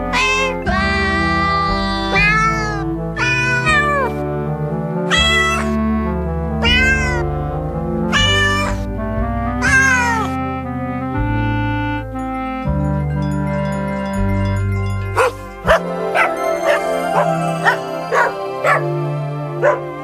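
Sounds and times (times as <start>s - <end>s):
melody of sampled cat meows: 0.0s - 4.2s, 5.1s - 5.8s, 6.6s - 7.4s, 8.1s - 8.9s, 9.6s - 10.4s
backing chords and bass: 4.2s - 20.0s.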